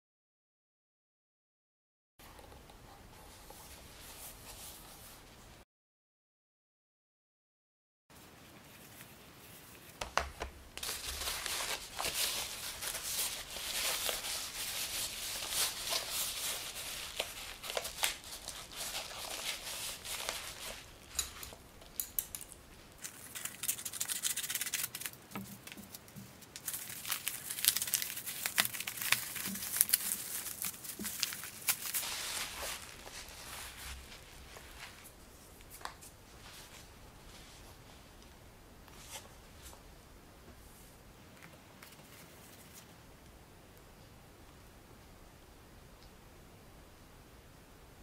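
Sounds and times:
rustling: 0:08.2 - 0:43.1
paper tearing and crinkling: 0:10.8 - 0:35.8.

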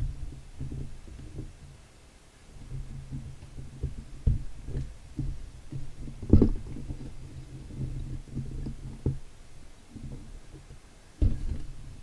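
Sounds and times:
soft thumps: 0:02.6 - 0:09.3, 0:09.9 - 0:12.0
knock: 0:11.2 - 0:11.6.

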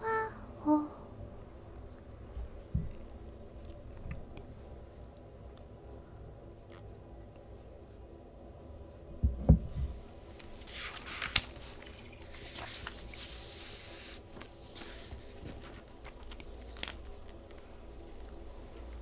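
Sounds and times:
paper and clothing rustling: 0:10.3 - 0:17.7.

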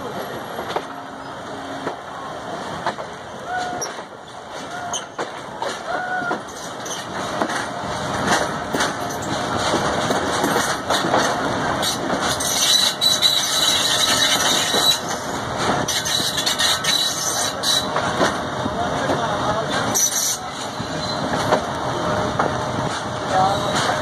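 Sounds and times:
train wheels rumbling and clicking: 0:00.0 - 0:24.0
high-pitched wheel squeal: 0:12.4 - 0:15.3, 0:15.9 - 0:17.9.

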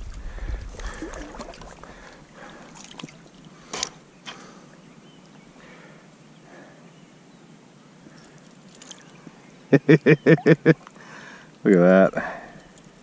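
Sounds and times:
water splashing and sloshing: 0:00.0 - 0:05.8, 0:08.1 - 0:09.4.

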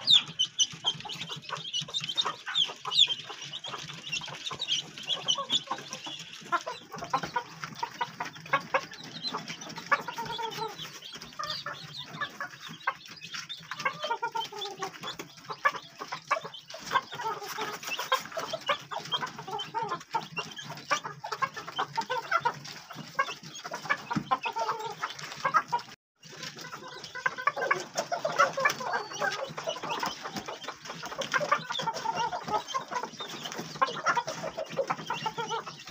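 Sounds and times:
chickens clucking: 0:00.0 - 0:35.9.

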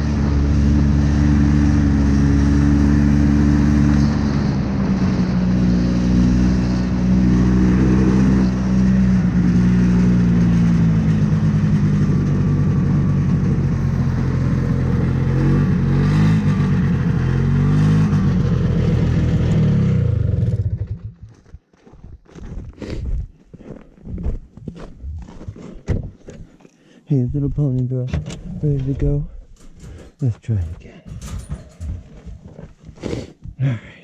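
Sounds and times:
snowmobile two-stroke engine running: 0:00.0 - 0:21.2
short knocks and crunches: 0:24.0 - 0:26.6, 0:27.9 - 0:33.6.

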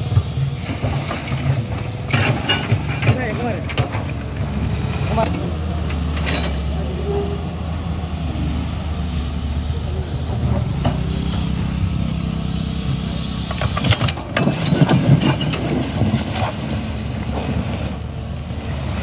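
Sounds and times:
excavator bucket clattering: 0:00.0 - 0:07.2, 0:13.4 - 0:18.1
diesel engine running: 0:00.0 - 0:19.0.

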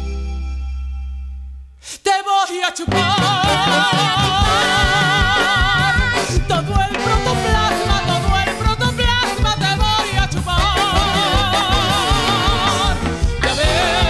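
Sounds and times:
high voice singing with vibrato: 0:01.8 - 0:14.0
band playing bass and drums: 0:02.9 - 0:14.0.

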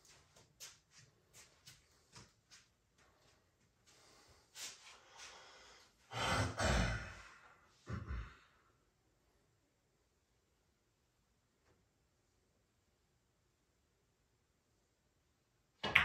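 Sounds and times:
person sighing heavily: 0:06.1 - 0:08.6.

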